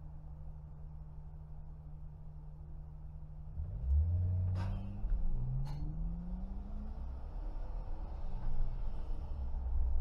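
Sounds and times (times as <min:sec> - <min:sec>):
car engine and road noise: 0:02.7 - 0:10.0.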